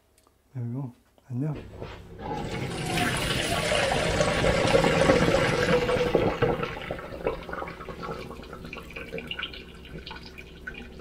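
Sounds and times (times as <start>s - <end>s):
water pouring into a sink: 2.2s - 11.0s
water trickling and dripping: 7.2s - 11.0s.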